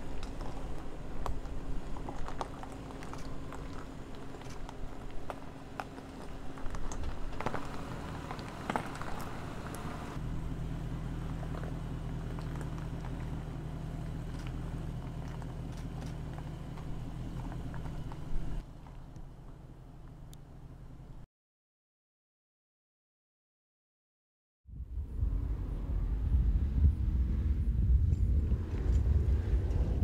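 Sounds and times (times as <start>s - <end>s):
tyres crunching over gravel: 0.0s - 20.3s
engine running at low revs: 0.0s - 21.2s, 24.7s - 30.0s.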